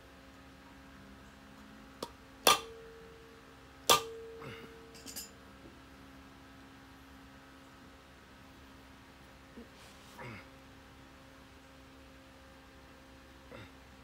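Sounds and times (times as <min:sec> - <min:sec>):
metal drum ringing: 0:02.5 - 0:03.2, 0:03.9 - 0:04.4
light metal clanks: 0:03.9 - 0:05.4.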